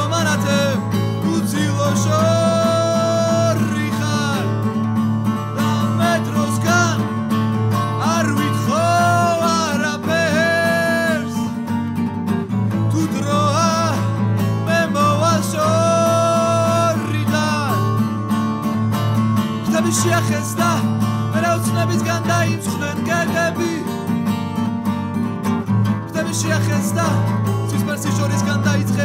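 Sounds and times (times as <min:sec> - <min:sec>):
man singing: 0:00.0 - 0:11.8, 0:12.7 - 0:24.3, 0:25.8 - 0:29.0
acoustic guitar strummed: 0:00.0 - 0:29.0.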